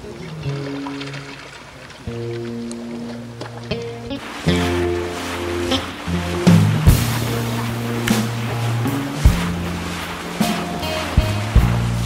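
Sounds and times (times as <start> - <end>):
music with sustained low notes: 0.0 - 12.0
percussive hit: 6.4 - 12.0.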